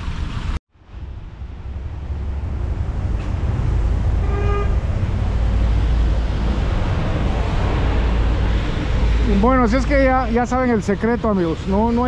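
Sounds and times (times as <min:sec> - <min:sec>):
passing vehicles: 0:00.0 - 0:12.0
car horn toot: 0:04.2 - 0:04.8.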